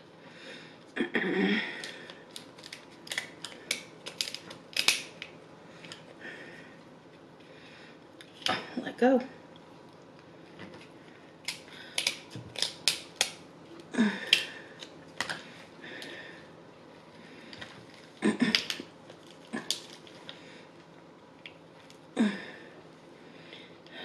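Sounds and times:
shell cracking: 0:01.8 - 0:05.3, 0:11.4 - 0:13.4
shears snipping shell: 0:02.6 - 0:05.2, 0:11.5 - 0:13.4.

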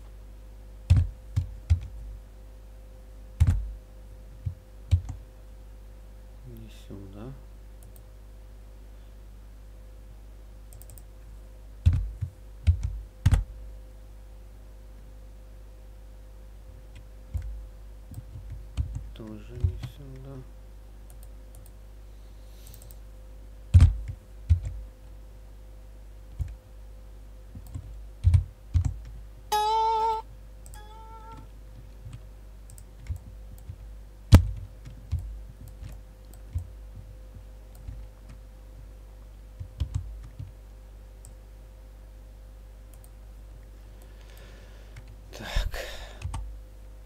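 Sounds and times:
low electrical hum: 0:00.0 - 0:47.0
short pitched tone: 0:29.5 - 0:30.2, 0:30.8 - 0:31.4.

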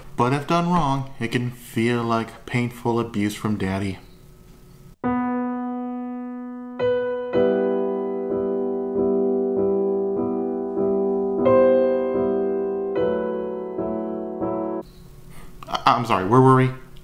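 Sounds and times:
soft solo piano music: 0:05.0 - 0:14.8.

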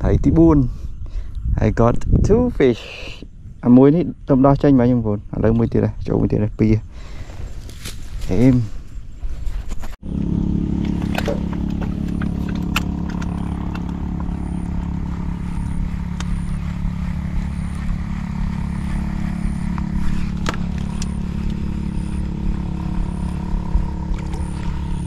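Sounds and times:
small engine running: 0:10.0 - 0:25.0
sharp clicks: 0:11.0 - 0:25.0.

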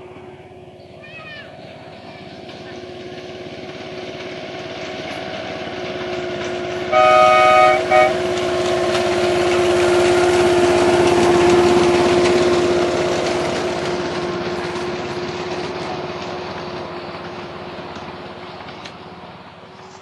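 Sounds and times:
locomotive engine drone: 0:00.0 - 0:20.0
wheels clicking over rail joints: 0:00.1 - 0:20.0
miniature train horn toots: 0:06.9 - 0:08.7.

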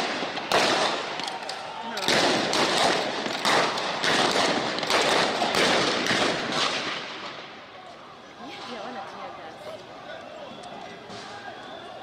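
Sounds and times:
sharp loud bangs with echo: 0:00.0 - 0:01.1, 0:02.0 - 0:07.4.

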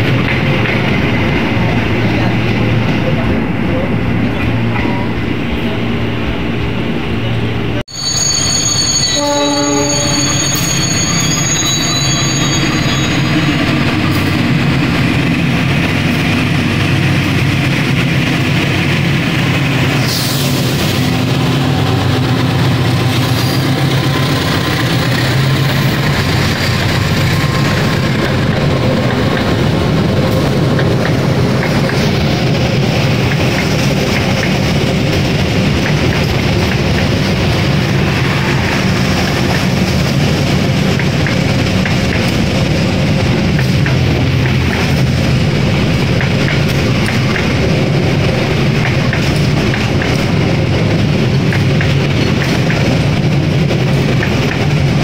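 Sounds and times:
train horn toots: 0:07.9 - 0:14.3
high wheel squeal: 0:07.9 - 0:14.9
rail clatter: 0:11.0 - 0:55.0.

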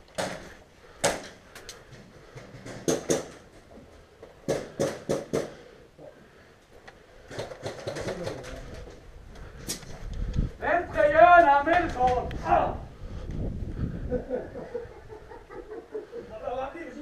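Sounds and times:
sharp knocks and taps: 0:02.3 - 0:03.4.

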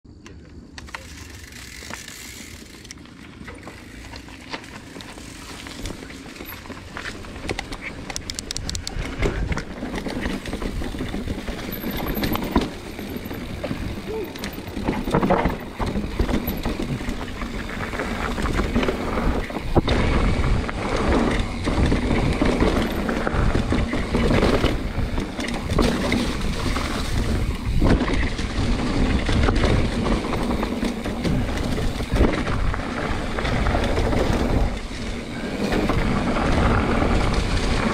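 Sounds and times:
bike tyres crunching over dirt: 0:00.3 - 0:37.9
bike rattling over bumps: 0:00.5 - 0:37.9
wind rumbling on microphone: 0:04.6 - 0:37.9
quick ticks: 0:07.5 - 0:09.0.

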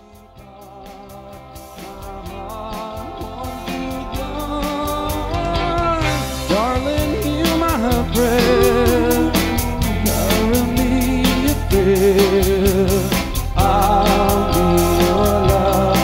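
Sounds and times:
guitar: 0:00.0 - 0:16.0
man and woman singing: 0:00.0 - 0:16.0
steady beat: 0:07.2 - 0:16.0.

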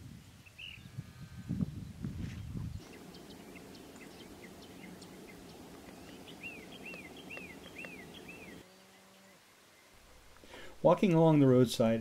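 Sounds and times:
faint outdoor background: 0:00.0 - 0:12.0
birds chirping: 0:02.6 - 0:10.6
bird repeated up-and-down notes: 0:02.8 - 0:08.6.

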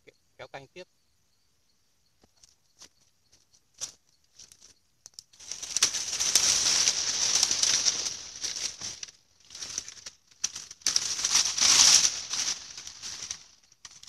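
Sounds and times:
dry leaves and twigs crackling: 0:02.2 - 0:14.0
branches dragged over grass: 0:05.3 - 0:14.0.

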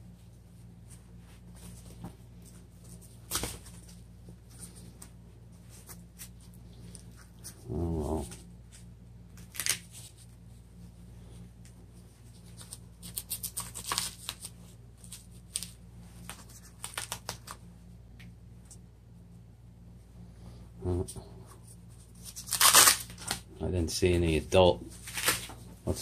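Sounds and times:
person humming: 0:07.6 - 0:08.4, 0:20.8 - 0:21.3
velcro strap ripping: 0:09.4 - 0:10.1, 0:12.6 - 0:17.6, 0:22.2 - 0:23.4.

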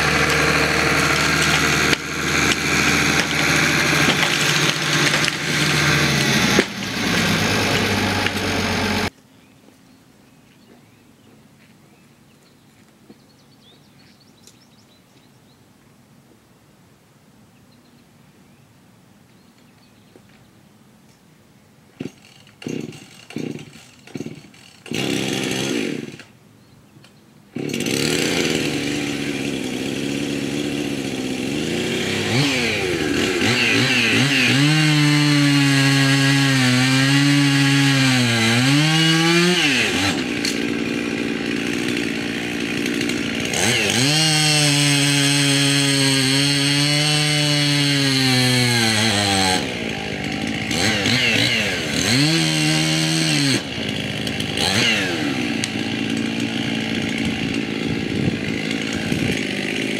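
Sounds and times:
chainsaw cutting into tree: 0:00.0 - 0:09.1, 0:22.0 - 0:26.4, 0:27.5 - 0:59.9
chainsaw engine running: 0:00.0 - 0:09.1, 0:22.0 - 0:26.3, 0:27.6 - 0:59.9
chainsaw pull-cord tugs: 0:00.0 - 0:09.1, 0:22.0 - 0:26.4, 0:27.5 - 0:59.9.

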